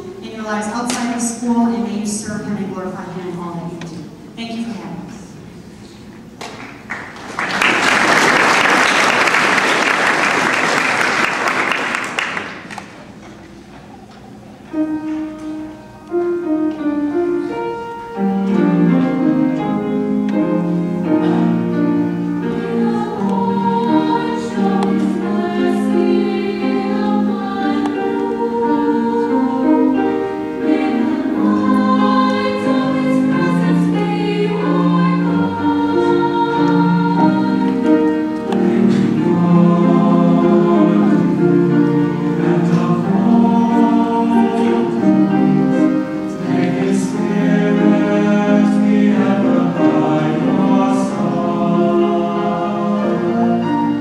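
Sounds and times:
audience applauding: 0:06.4 - 0:13.0
choir singing: 0:14.7 - 0:54.0.

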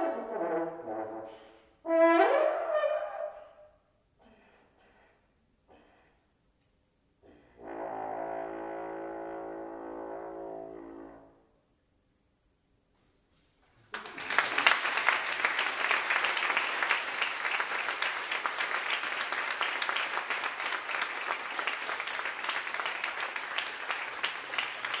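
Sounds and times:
audience applause: 0:13.9 - 0:25.0.

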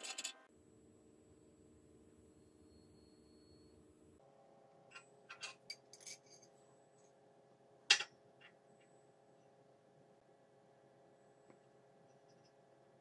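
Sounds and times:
steel wrench parts clinking: 0:04.9 - 0:06.5.

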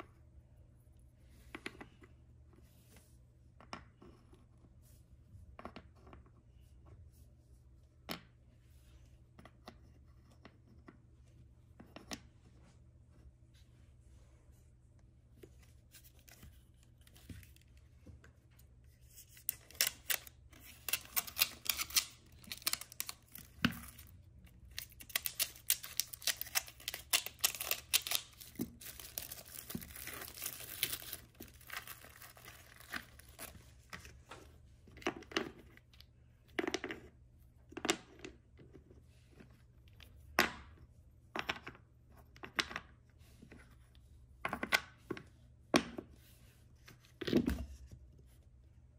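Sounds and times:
packaging tearing and crinkling: 0:19.4 - 0:24.1, 0:24.7 - 0:33.5.

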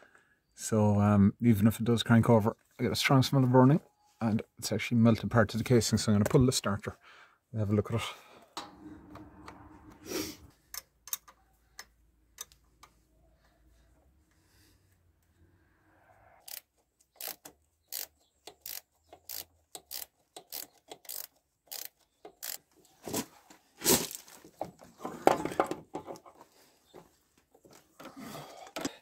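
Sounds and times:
metallic scraping and clunking: 0:08.5 - 0:10.7
ratchet clicking: 0:16.4 - 0:22.7.

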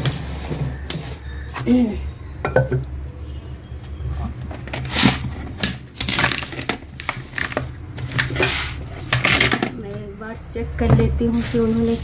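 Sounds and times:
plastic bags rustling: 0:04.3 - 0:09.9, 0:11.0 - 0:12.0
plastic jars knocking: 0:06.0 - 0:09.9.

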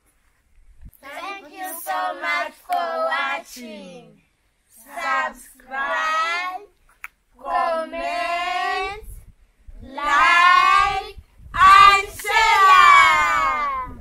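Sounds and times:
children and women singing: 0:01.1 - 0:04.2, 0:04.8 - 0:06.7, 0:07.4 - 0:09.1, 0:09.8 - 0:14.0.

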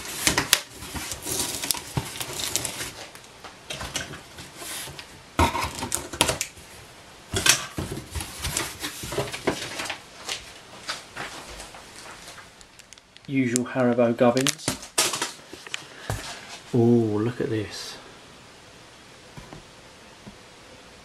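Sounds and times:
tape tearing: 0:00.0 - 0:03.2.

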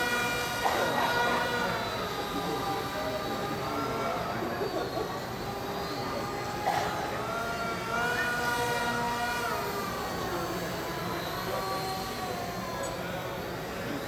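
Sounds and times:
small electric motor whining: 0:00.0 - 0:14.0.

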